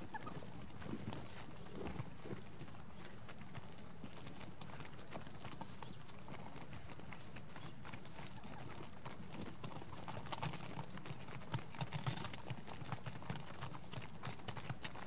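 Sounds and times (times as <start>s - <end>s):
turkey footsteps in snow: 0.0s - 10.0s
turkeys pecking at grain: 0.0s - 15.0s.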